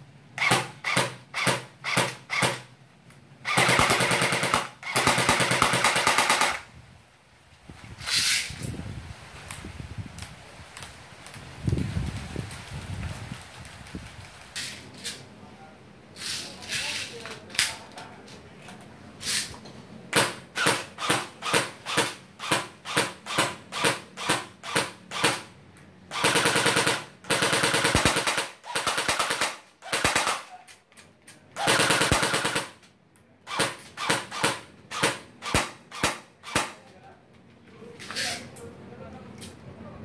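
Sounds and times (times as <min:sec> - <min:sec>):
airsoft gun firing: 0:00.4 - 0:02.7, 0:03.4 - 0:06.7, 0:20.1 - 0:25.5, 0:26.1 - 0:30.6, 0:31.6 - 0:32.8, 0:33.5 - 0:36.8.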